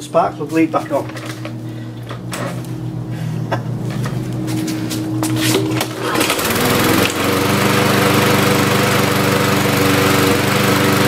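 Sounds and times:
lawnmower engine starting and running: 0:00.0 - 0:11.0.

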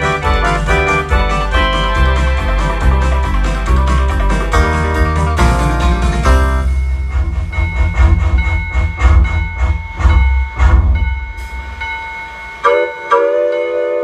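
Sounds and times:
home organ playing: 0:00.0 - 0:08.2
drum rhythm beat: 0:00.0 - 0:12.0
deep bass notes: 0:00.0 - 0:12.4.

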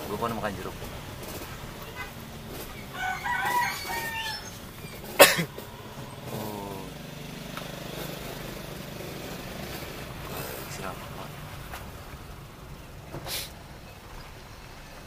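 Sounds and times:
car engine idling: 0:00.0 - 0:15.0
rooster crowing: 0:02.8 - 0:05.0.

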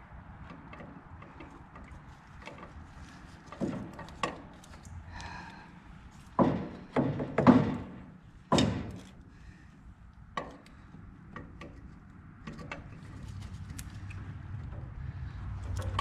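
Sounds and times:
metal knocks and clicks: 0:03.5 - 0:04.6, 0:06.3 - 0:09.2, 0:10.3 - 0:13.2, 0:15.6 - 0:16.0.

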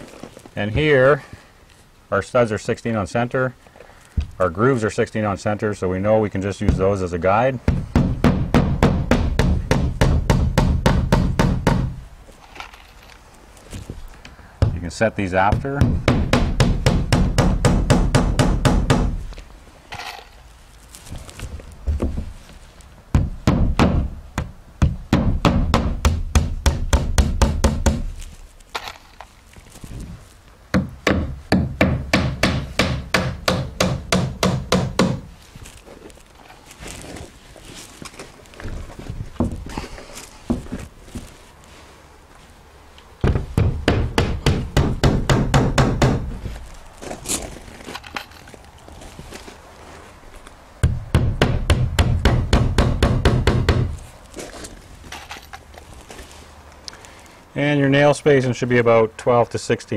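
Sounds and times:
hammer driving nails into wood: 0:07.7 - 0:12.0, 0:15.6 - 0:19.2, 0:23.2 - 0:28.1, 0:30.7 - 0:35.3, 0:43.2 - 0:46.3, 0:50.8 - 0:54.0.

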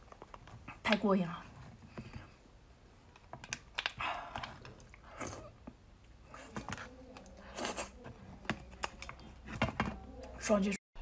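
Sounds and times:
chewing and wet mouth noises: 0:03.0 - 0:09.4.

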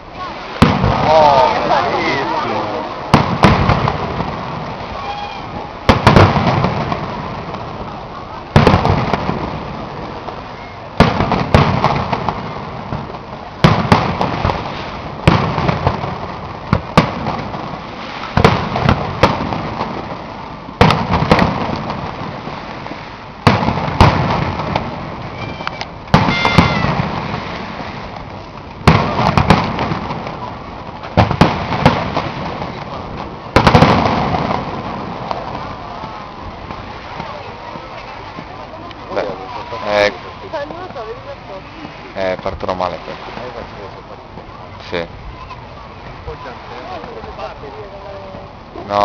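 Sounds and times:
fireworks bangs with echo: 0:00.2 - 0:49.0.

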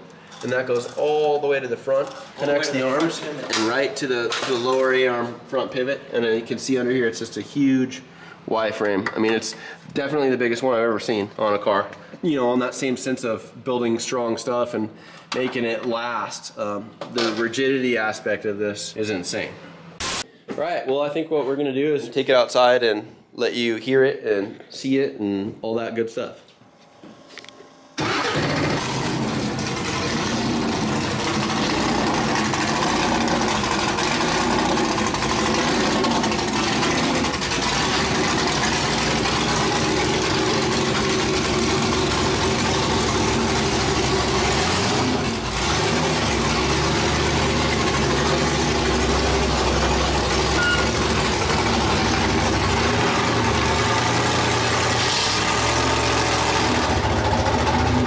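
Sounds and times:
truck engine idling: 0:28.0 - 0:58.0.

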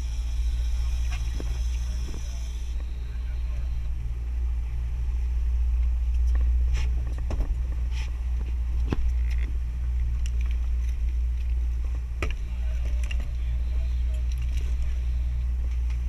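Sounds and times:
boat engine droning: 0:00.0 - 0:16.0
fishing gear clicks and knocks: 0:08.8 - 0:11.6, 0:12.2 - 0:13.4, 0:14.1 - 0:14.9.

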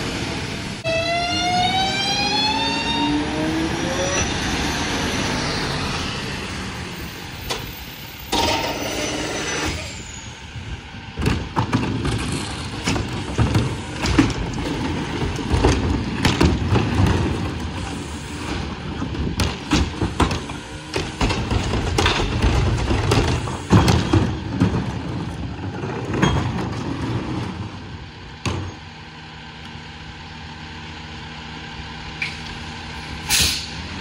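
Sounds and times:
garbage truck engine: 0:00.0 - 0:34.0
trash carts knocking and clattering: 0:07.4 - 0:09.1, 0:11.1 - 0:28.9
air brake hiss: 0:33.2 - 0:33.8.

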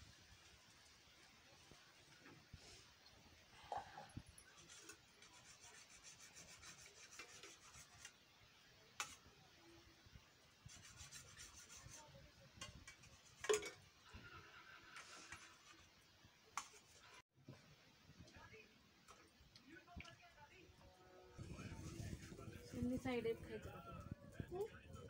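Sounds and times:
faint rubbing and scraping: 0:01.5 - 0:08.2, 0:10.6 - 0:17.6, 0:21.3 - 0:25.0.

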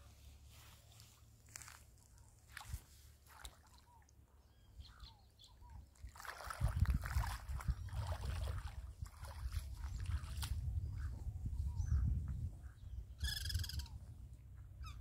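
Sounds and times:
small waves lapping: 0:01.5 - 0:05.0, 0:05.7 - 0:10.6
wind buffeting microphone: 0:06.4 - 0:14.3.

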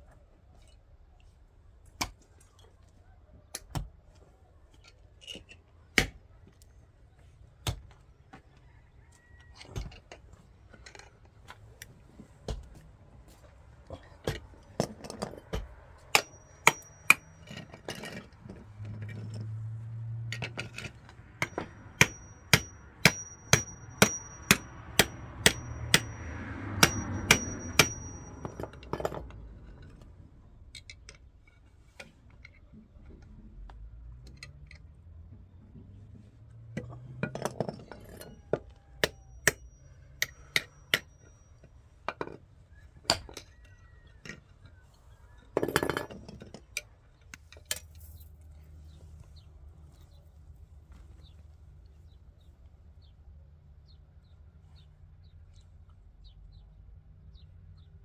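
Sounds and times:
hammer striking metal: 0:15.5 - 0:17.6, 0:21.4 - 0:29.1.

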